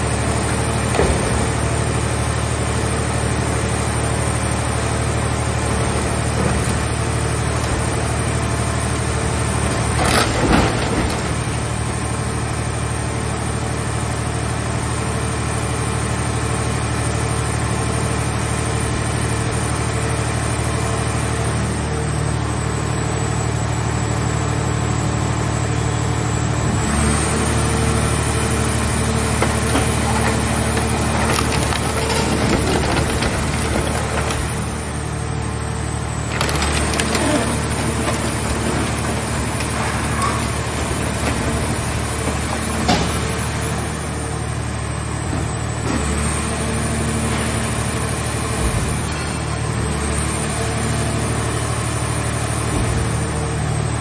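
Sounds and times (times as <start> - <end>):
hydraulic unit humming: 21.5 - 54.0
metal crunching: 28.2 - 35.2, 35.8 - 43.8.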